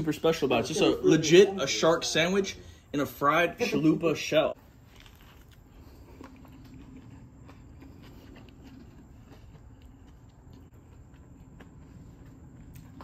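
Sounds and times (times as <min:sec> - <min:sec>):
low background hum: 0:00.0 - 0:13.0
crunching and chewing: 0:04.6 - 0:13.0.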